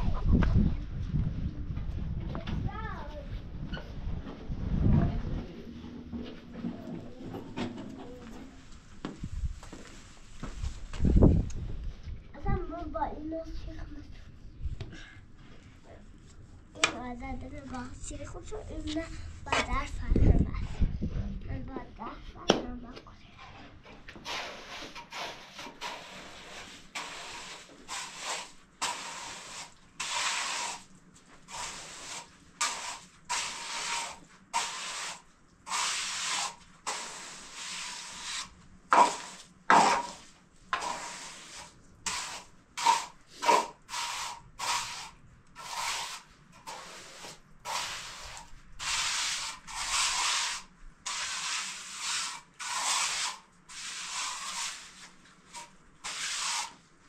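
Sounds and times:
rough scraping strokes: 0:23.4 - 0:56.8.

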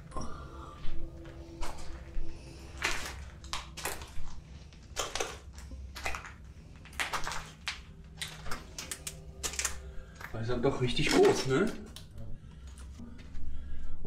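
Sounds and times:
footsteps crunching over rubble: 0:01.2 - 0:11.9.

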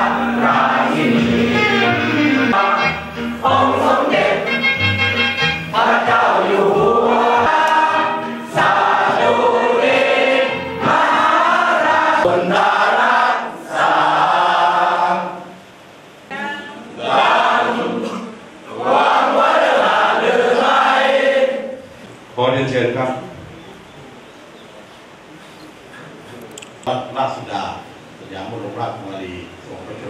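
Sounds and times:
group singing in unison: 0:00.0 - 0:04.8, 0:05.7 - 0:15.6, 0:16.3 - 0:21.8.

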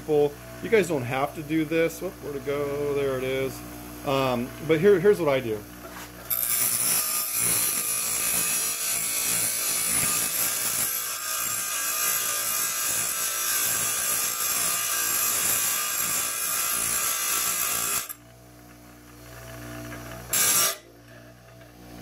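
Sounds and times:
bench grinder grinding metal: 0:06.0 - 0:18.2, 0:19.1 - 0:21.7.

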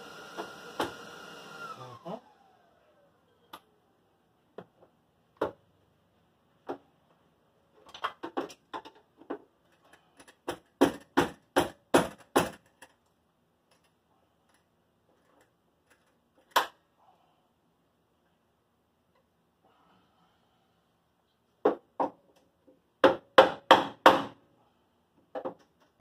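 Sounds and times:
knocks on sheet metal: 0:10.8 - 0:12.6, 0:23.0 - 0:24.4.

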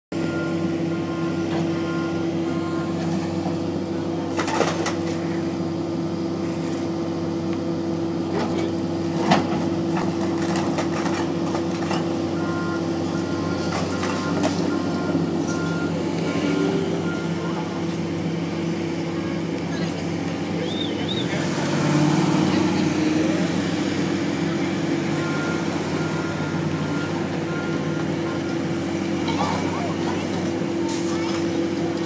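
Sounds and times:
heavy machinery engine drone: 0:00.1 - 0:32.0
backup alarm beeping: 0:00.2 - 0:02.9, 0:12.4 - 0:17.9.

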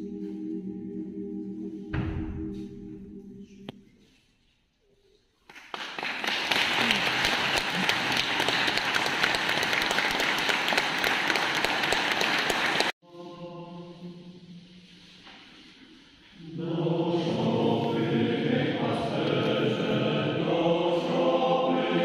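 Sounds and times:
audience applauding: 0:05.5 - 0:13.0.

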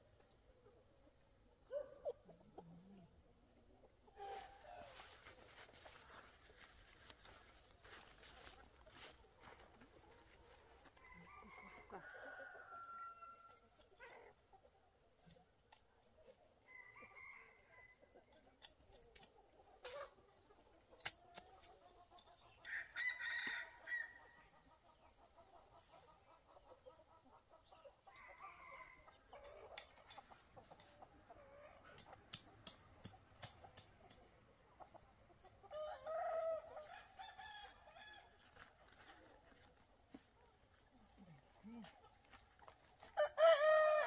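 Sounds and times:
chickens clucking: 0:00.1 - 0:12.0, 0:18.1 - 0:22.7, 0:24.2 - 0:37.2
rooster crowing: 0:11.0 - 0:13.5, 0:43.2 - 0:44.0.

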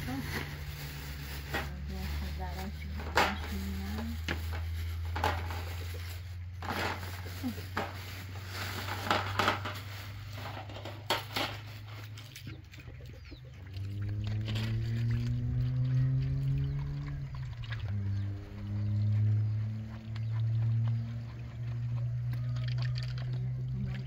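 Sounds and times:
plastic bags rustling: 0:00.0 - 0:12.3
hen clucking: 0:12.4 - 0:13.8.

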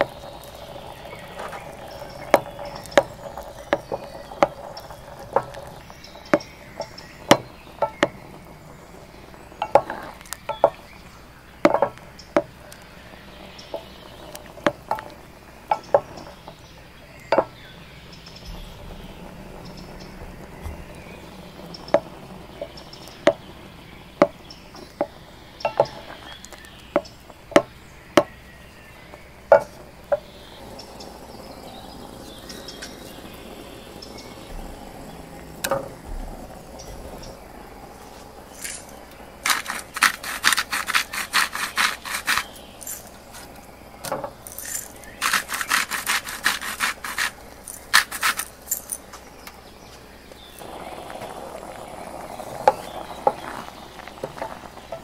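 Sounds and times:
salt pattering on meat and board: 0:38.6 - 0:43.6, 0:44.4 - 0:48.8.

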